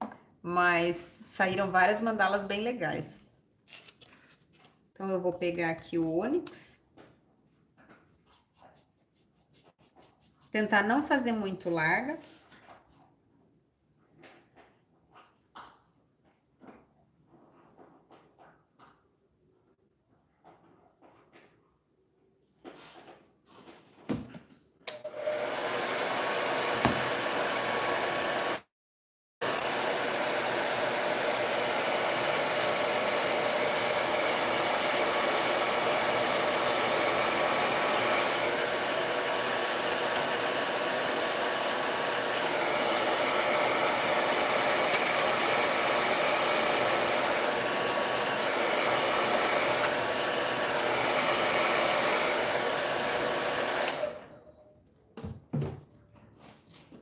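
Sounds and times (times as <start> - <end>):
hair dryer blowing: 24.9 - 28.7, 29.4 - 54.4.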